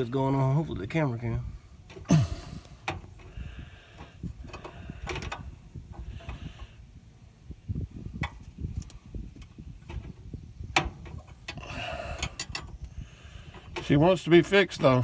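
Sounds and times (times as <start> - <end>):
metallic clicks and scraping: 1.9 - 6.8, 8.1 - 11.6, 12.2 - 14.0.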